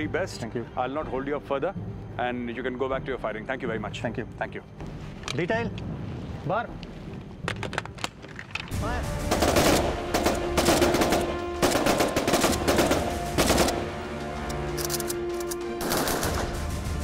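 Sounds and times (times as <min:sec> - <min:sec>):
background music: 0:00.0 - 0:17.0
rifle gunfire bursts: 0:09.3 - 0:13.9, 0:15.8 - 0:16.6.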